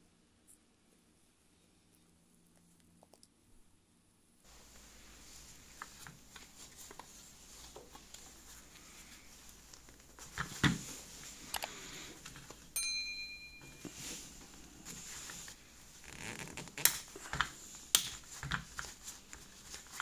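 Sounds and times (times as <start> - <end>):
brief chime-like tone: 12.8 - 14.3.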